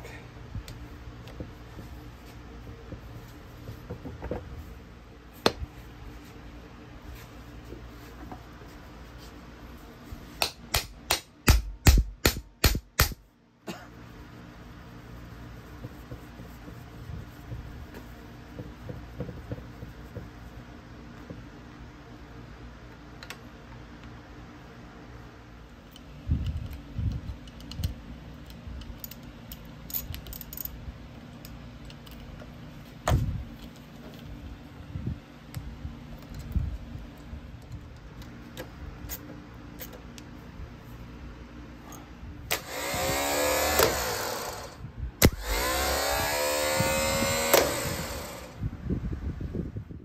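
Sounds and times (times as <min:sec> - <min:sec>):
hammer striking metal: 0:10.4 - 0:13.2.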